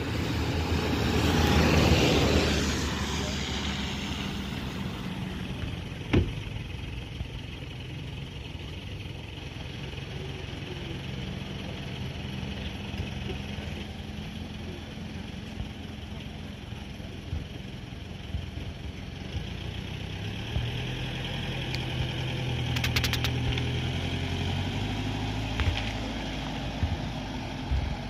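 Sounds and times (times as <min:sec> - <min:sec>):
vehicle engine idling: 0:00.0 - 0:28.0.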